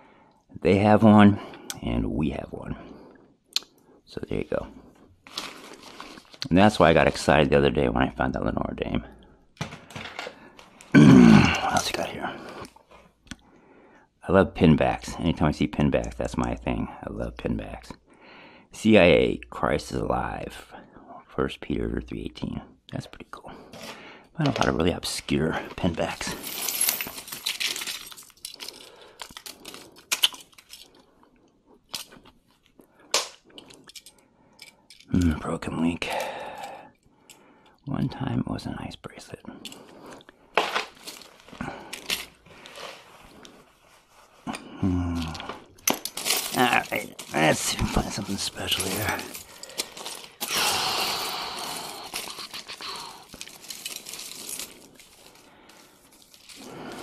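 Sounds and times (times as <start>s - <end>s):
crinkling rustle: 4.5s - 7.4s, 23.7s - 34.2s, 39.6s - 44.5s, 45.2s - 50.5s, 51.1s - 57.0s
small metal pieces clinking: 26.2s - 31.0s, 33.6s - 35.2s, 45.2s - 57.0s
soft rustling: 40.6s - 44.5s, 51.9s - 57.0s.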